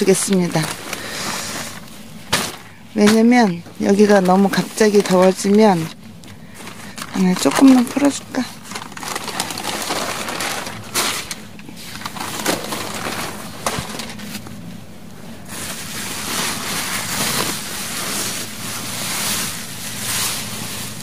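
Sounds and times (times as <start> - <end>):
bubble wrap crinkling: 0.0 - 14.6, 15.4 - 21.0
newspaper rustling: 0.0 - 14.6, 15.4 - 21.0.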